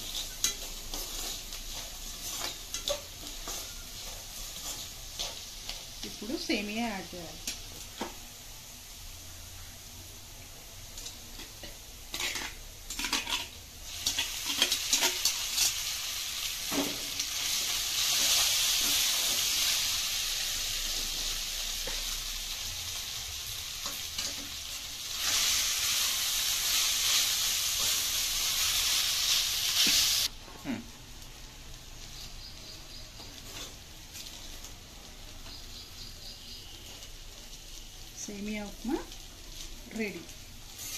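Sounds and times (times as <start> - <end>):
spatula scraping and knocking pan: 0.0 - 6.1
noodles sizzling in hot oil: 0.0 - 40.9.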